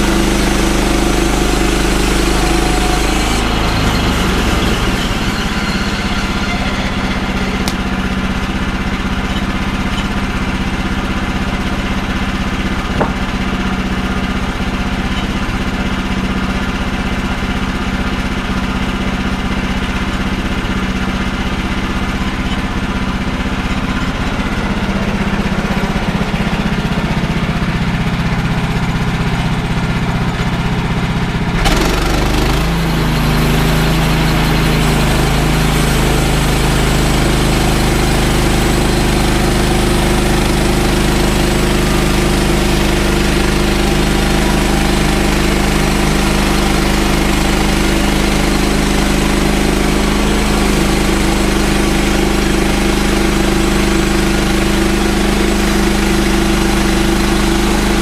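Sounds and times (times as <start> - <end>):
gas engine revving: 0.0 - 58.0
band blade cutting log: 12.8 - 13.5.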